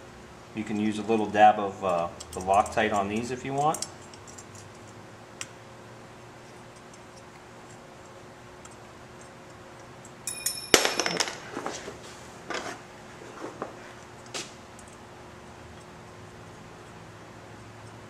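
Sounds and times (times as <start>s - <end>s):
light metal clinks: 10.2s - 11.2s.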